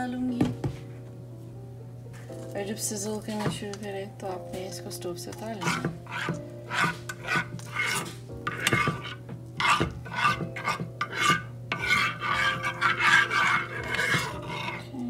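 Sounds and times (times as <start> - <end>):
metal spoon scraping a frying pan: 5.3 - 15.0.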